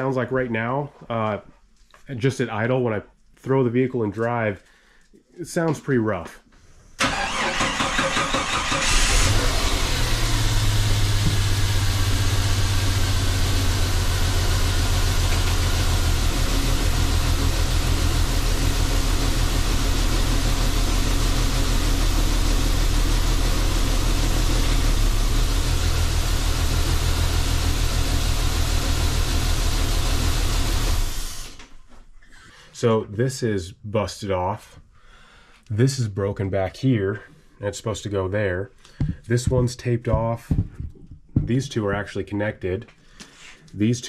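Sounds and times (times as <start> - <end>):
car engine cranking and idling: 7.0 - 31.6.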